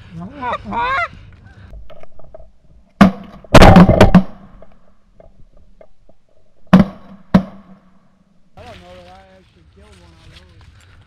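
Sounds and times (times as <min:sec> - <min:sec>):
shotguns firing: 0:03.0 - 0:04.6.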